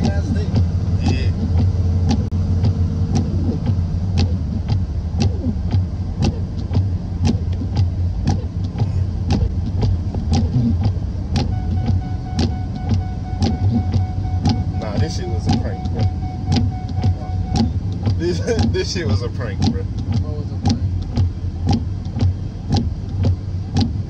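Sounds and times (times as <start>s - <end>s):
sharp regular clicks: 0.0s - 24.0s
truck engine rumble: 0.0s - 24.0s
faint steady tone: 11.5s - 18.6s.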